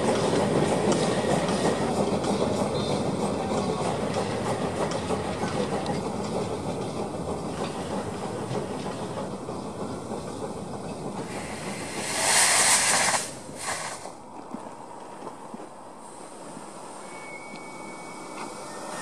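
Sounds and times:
train coaches rumbling over rails: 0.0s - 19.0s
steam hissing: 6.5s - 14.2s, 16.0s - 19.0s.

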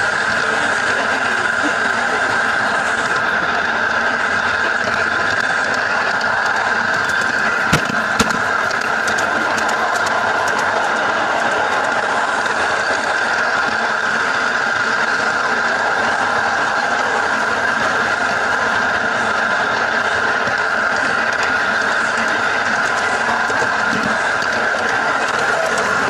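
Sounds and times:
miniature locomotive running: 0.0s - 26.0s
sharp clicks: 5.3s - 10.8s.

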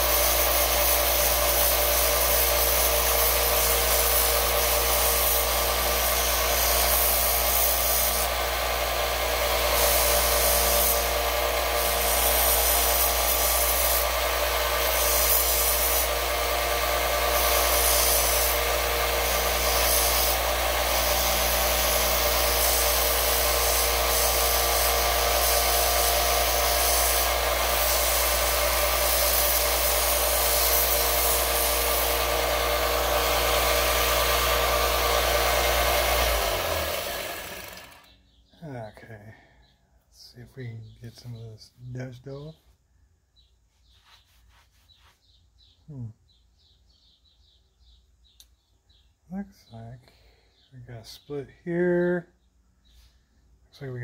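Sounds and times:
belt sander motor hum: 0.0s - 38.2s
wood grinding hiss on belt: 0.0s - 38.2s.

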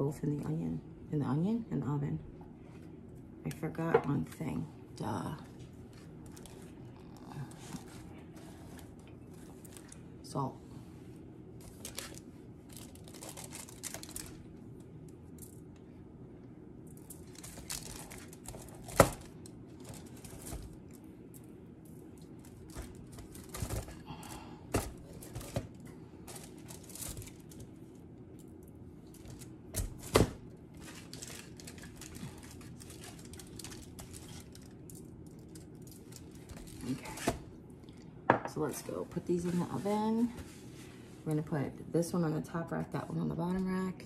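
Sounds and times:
foil crinkling: 11.6s - 14.5s, 17.0s - 21.4s, 22.2s - 27.8s, 28.4s - 37.4s.

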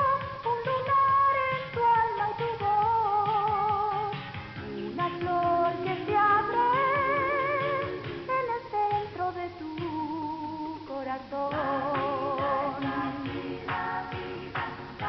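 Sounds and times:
person singing: 0.0s - 15.0s.

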